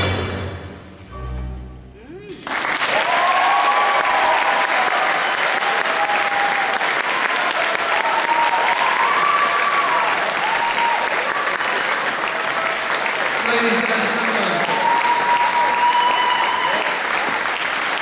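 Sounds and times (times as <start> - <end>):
audience applauding: 2.3 - 18.0.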